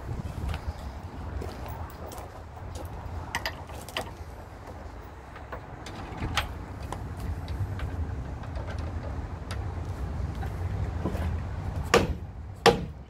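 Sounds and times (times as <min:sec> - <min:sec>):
knocks and clicks of parts handled: 0:03.3 - 0:13.0.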